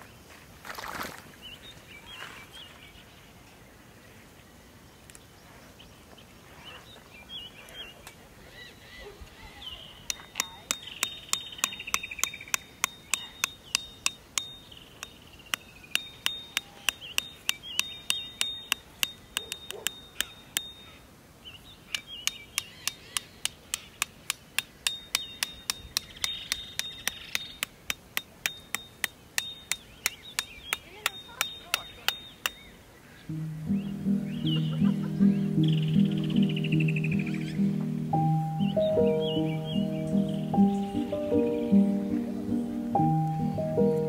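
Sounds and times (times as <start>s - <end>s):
hammer striking metal tent peg: 10.1s - 20.8s, 21.9s - 32.6s.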